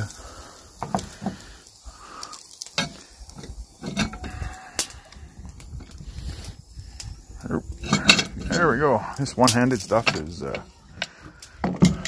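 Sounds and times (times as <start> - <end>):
pie iron sizzling: 0.0 - 12.0
metal clicks and clanks: 2.7 - 4.9, 7.8 - 12.0.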